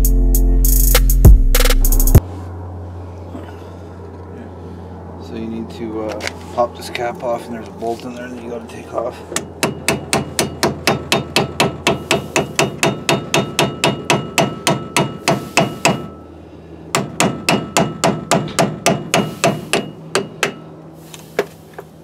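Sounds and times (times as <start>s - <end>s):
hammer tapping on metal: 9.4s - 16.2s, 16.9s - 20.6s.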